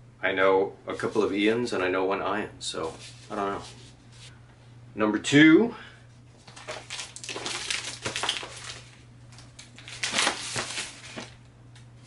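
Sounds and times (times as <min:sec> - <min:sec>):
package wrapping crinkling: 0:06.3 - 0:11.4.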